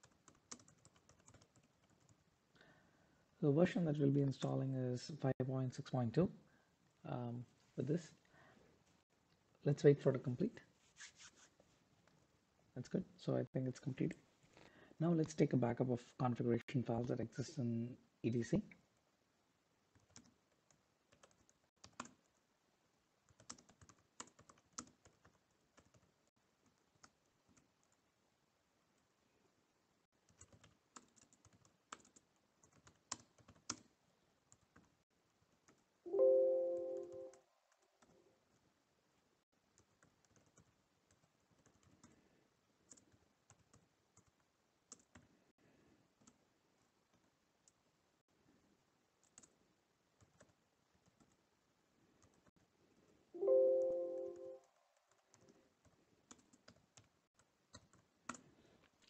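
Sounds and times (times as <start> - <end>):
keyboard typing: 0.0 - 2.2, 19.9 - 22.4, 23.3 - 28.0, 30.2 - 33.9, 35.6 - 38.7, 39.7 - 42.2, 42.8 - 45.3, 49.2 - 49.6, 50.2 - 51.4, 53.4 - 58.5
brief tone: 36.1 - 37.4, 53.4 - 54.7.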